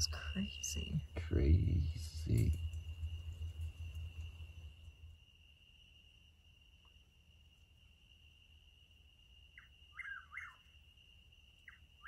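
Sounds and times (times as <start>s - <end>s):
faint high-pitched drone: 0.0s - 6.3s
bird calling: 9.6s - 10.7s.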